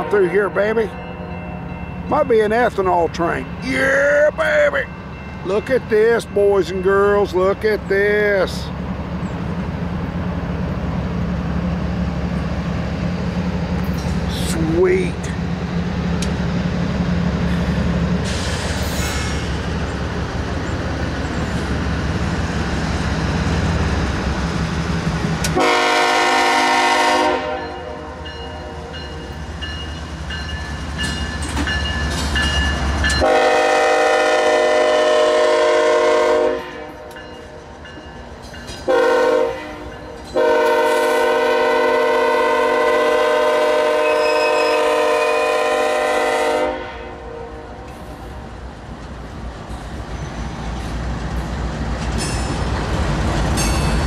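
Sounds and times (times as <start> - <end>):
diesel locomotives rumbling: 0.0 - 54.0
train cars rolling on rails: 0.0 - 54.0
train air horn blasts: 25.5 - 28.9, 33.2 - 37.1, 38.9 - 47.8.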